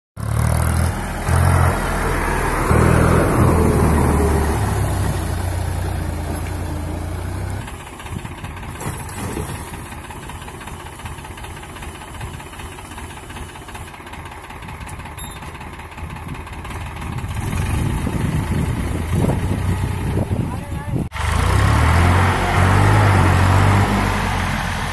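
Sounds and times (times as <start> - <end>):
tractor diesel engine running: 0.2 - 24.9
rotary tiller churning water: 7.8 - 13.8.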